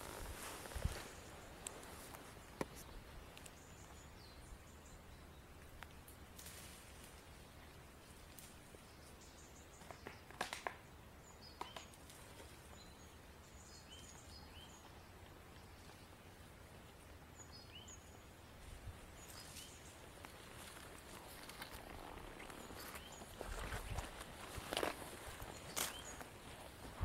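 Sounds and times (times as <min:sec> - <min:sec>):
twigs snapping underfoot: 0:09.8 - 0:10.8, 0:11.6 - 0:12.5, 0:20.2 - 0:26.3.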